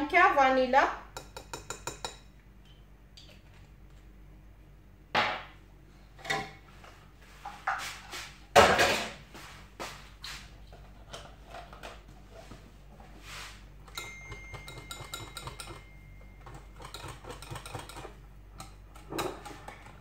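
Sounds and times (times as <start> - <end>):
kitchen items knocking on countertop: 5.1 - 5.6, 8.6 - 9.2.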